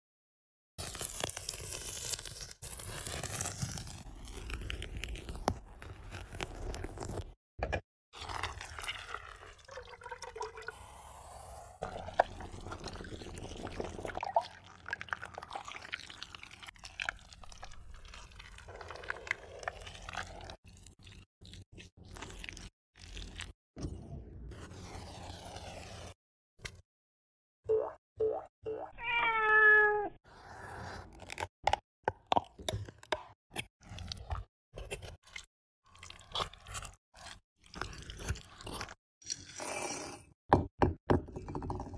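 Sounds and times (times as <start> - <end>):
liquid pouring into a pan: 8.2 - 10.8
knife crunching through rind: 35.9 - 39.7.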